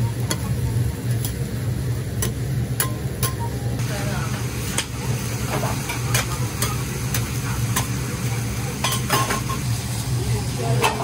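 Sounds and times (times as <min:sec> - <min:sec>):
hot plate sizzling: 0:00.0 - 0:11.0
metal spatulas clinking on griddle: 0:08.8 - 0:09.6.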